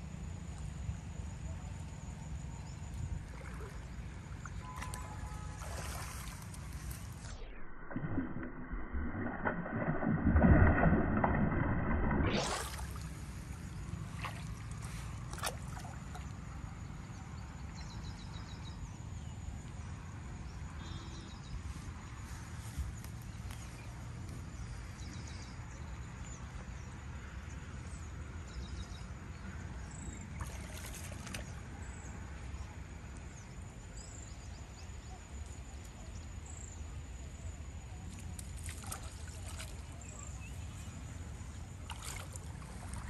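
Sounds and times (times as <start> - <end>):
water sloshing and trickling: 2.0 - 20.7, 29.9 - 34.4, 35.0 - 43.0
low rumble: 7.1 - 13.9.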